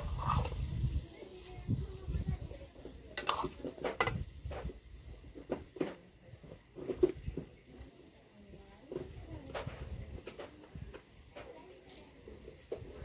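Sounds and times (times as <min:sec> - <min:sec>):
steel ladle scraping a wok: 0:00.0 - 0:01.0, 0:02.8 - 0:04.8.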